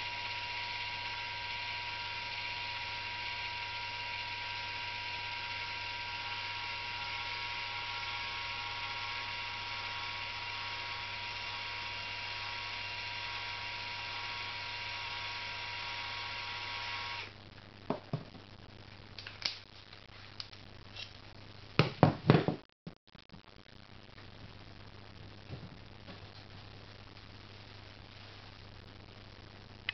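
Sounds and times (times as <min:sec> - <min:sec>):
cordless drill whining: 0:00.0 - 0:17.3.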